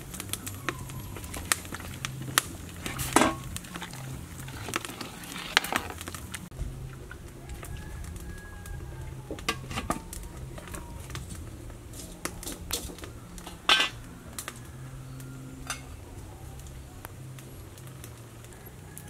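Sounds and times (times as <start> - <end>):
metal ladle clinking on pot: 15.6 - 16.0.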